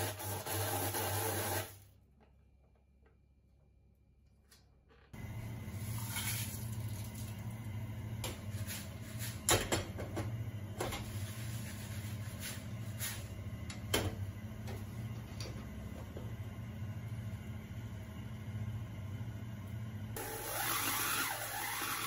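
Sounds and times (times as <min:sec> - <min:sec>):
gas burner hum: 0:05.1 - 0:22.0.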